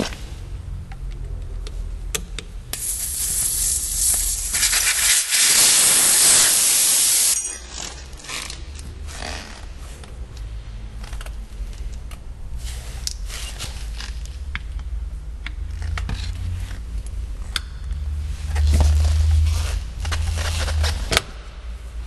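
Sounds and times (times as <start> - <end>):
air hissing from tyre valve: 2.7 - 7.4.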